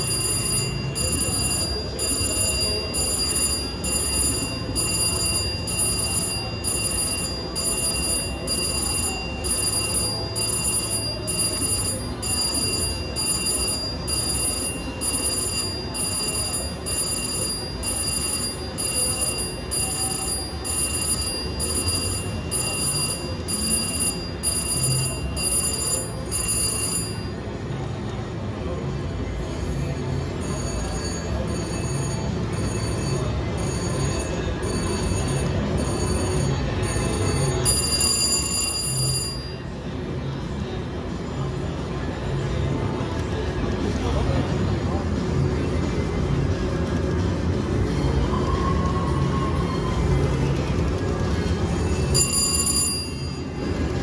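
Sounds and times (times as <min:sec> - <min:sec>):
electronic bell ringing: 0:00.0 - 0:27.8, 0:29.6 - 0:40.3, 0:50.9 - 0:54.0
casino background hum: 0:00.0 - 0:54.0.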